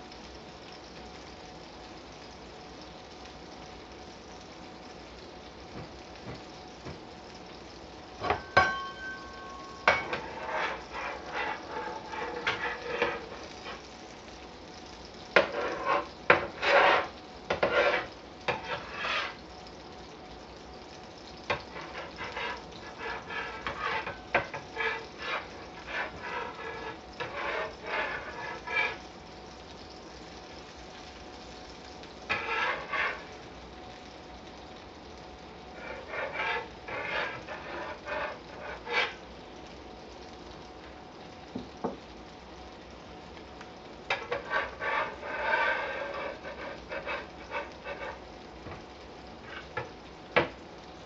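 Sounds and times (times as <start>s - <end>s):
steady hum: 0.0s - 41.3s
utensils clinking against cookware: 8.2s - 13.8s.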